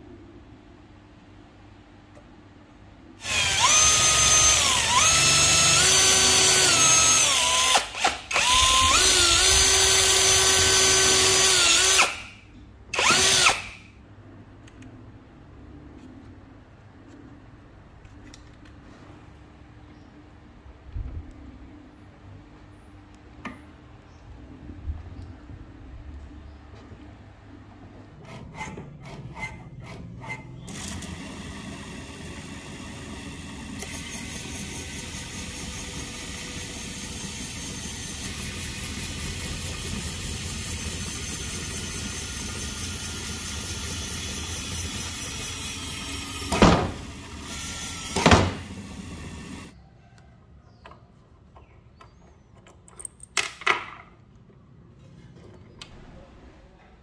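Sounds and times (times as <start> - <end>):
drill motor whining: 3.2 - 13.8, 29.4 - 49.7.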